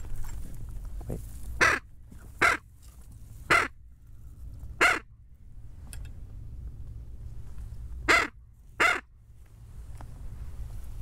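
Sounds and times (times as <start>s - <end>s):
duck call quacks: 1.6s - 2.6s, 3.5s - 3.8s, 4.8s - 5.1s, 8.1s - 9.1s.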